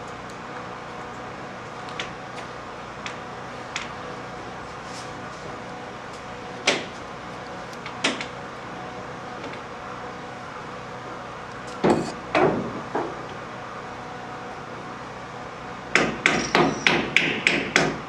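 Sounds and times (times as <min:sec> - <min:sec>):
steady background hum: 0:00.0 - 0:18.0
sharp knocks and bangs: 0:11.8 - 0:13.2, 0:16.0 - 0:18.0.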